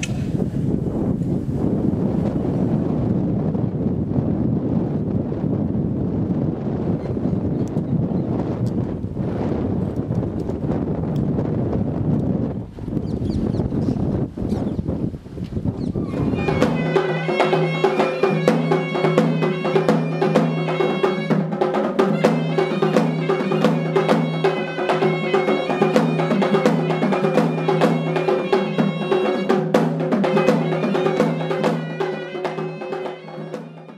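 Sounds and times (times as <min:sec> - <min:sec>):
percussion with even beat: 0:16.2 - 0:33.9
quick struck notes: 0:16.4 - 0:33.9.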